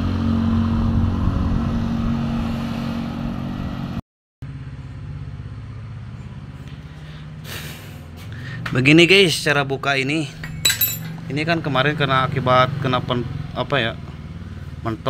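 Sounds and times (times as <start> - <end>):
low pulsing engine hum: 0.0 - 8.7
vehicle engine running: 0.0 - 15.0.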